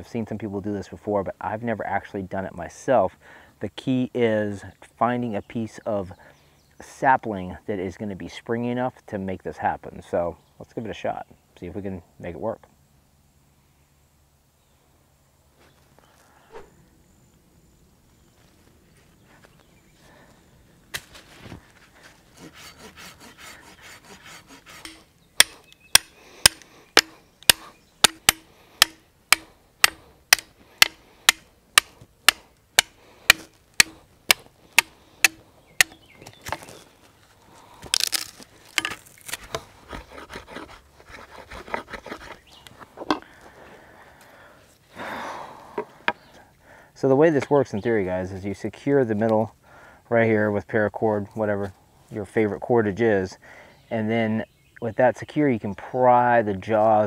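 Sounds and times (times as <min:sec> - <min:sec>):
scraping: 0:21.0 - 0:43.3
hatchet chopping wood: 0:24.0 - 0:36.7, 0:38.0 - 0:42.4
wood knocking and crackling: 0:24.8 - 0:36.8, 0:37.8 - 0:40.0.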